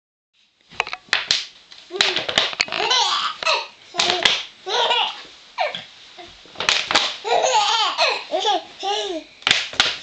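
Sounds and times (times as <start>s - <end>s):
plastic bottle crinkling: 2.0s - 3.0s
baby laughing: 2.7s - 6.3s, 7.2s - 9.3s.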